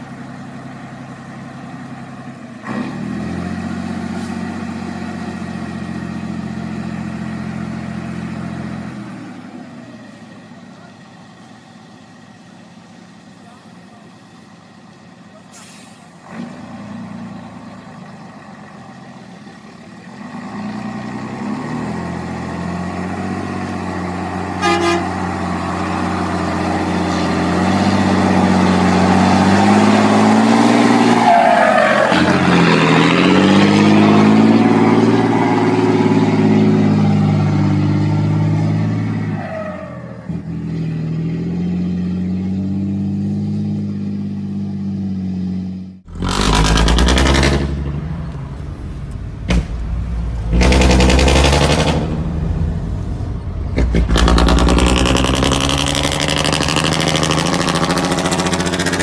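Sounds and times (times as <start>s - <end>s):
diesel truck engine revving: 0.0s - 59.0s
horn toot: 24.5s - 25.4s.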